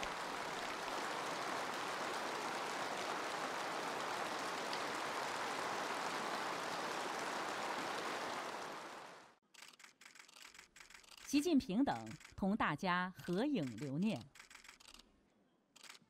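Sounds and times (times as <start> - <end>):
large crowd applauding: 0.0 - 9.4.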